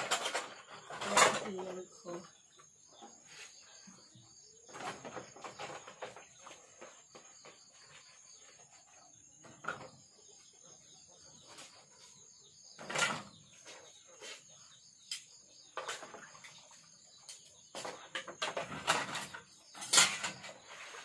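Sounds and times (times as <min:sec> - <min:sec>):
dishes clattering: 0:17.3 - 0:20.6.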